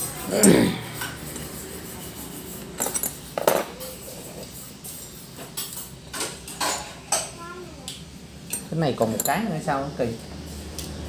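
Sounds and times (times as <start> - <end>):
metal spanners clinking: 2.5 - 6.9, 8.5 - 9.5.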